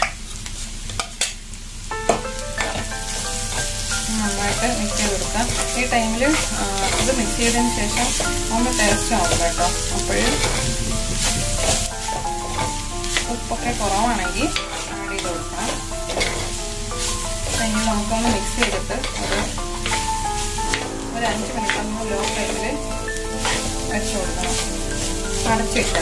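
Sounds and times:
food sizzling: 0.0 - 26.0
music tune: 1.9 - 26.0
spatula scraping clay pot: 10.1 - 10.8, 16.1 - 16.5, 18.6 - 20.0.

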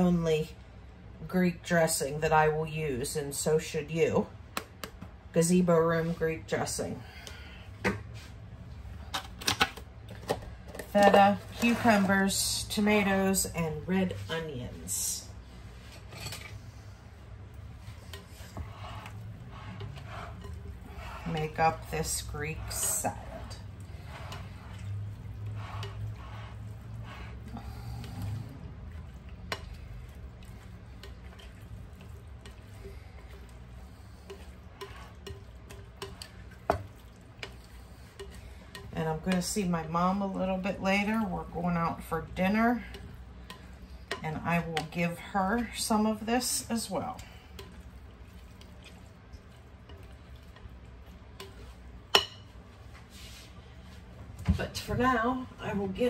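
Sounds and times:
low steady hum: 0.0 - 56.0
salad stirring rustle: 10.5 - 56.0
utensil tapping bowl: 34.2 - 39.5, 42.4 - 45.1, 49.8 - 52.5.

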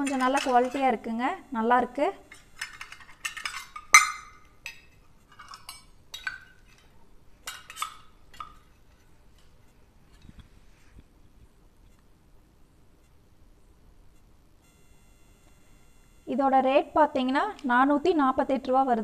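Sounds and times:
metal measuring cups clinking: 0.0 - 1.0, 2.2 - 9.6.

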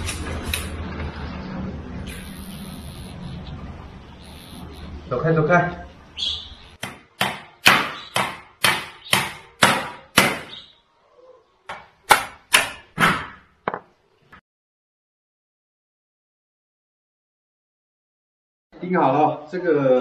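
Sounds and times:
hammer driving nails into wood: 6.8 - 10.5.

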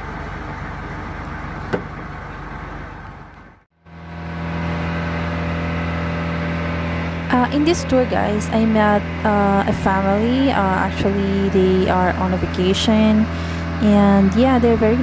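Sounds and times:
boat engine humming: 0.0 - 15.0.

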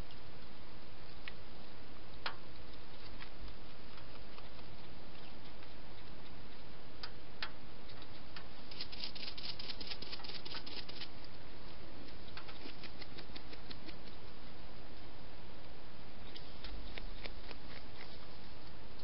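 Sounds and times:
hedgehog clicks and rustles: 2.2 - 7.2, 7.9 - 11.4, 12.1 - 14.2.

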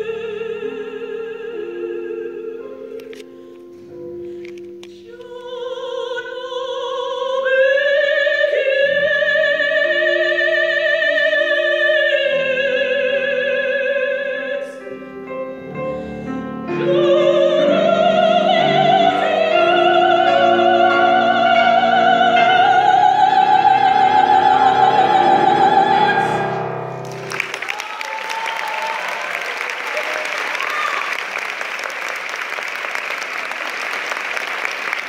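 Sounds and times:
operatic soprano singing: 0.0 - 3.8, 4.8 - 26.9
grand piano chords: 8.2 - 27.6
audience applause: 27.0 - 35.0.

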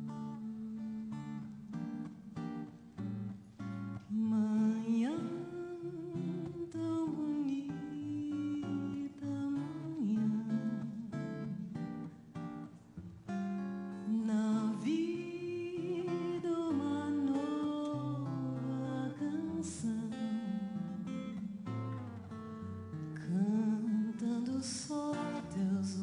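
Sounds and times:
fingerpicked acoustic guitar: 0.0 - 26.0
woman singing: 3.9 - 12.5, 13.9 - 26.0.

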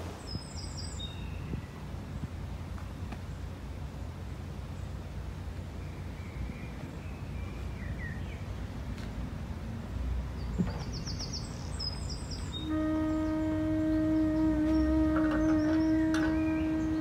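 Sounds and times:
birds chirping: 10.3 - 17.0.

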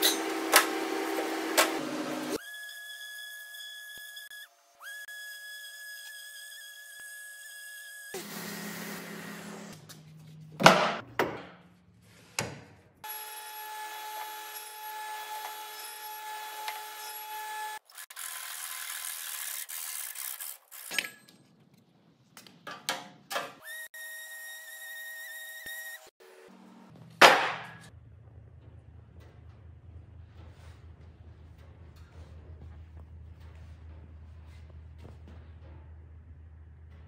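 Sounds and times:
table saw cutting timber: 0.0 - 9.8, 13.0 - 20.4.

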